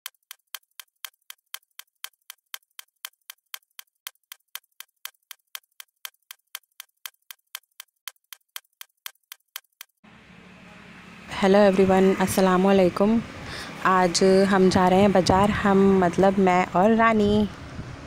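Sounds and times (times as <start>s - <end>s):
clock ticking: 0.0s - 9.9s.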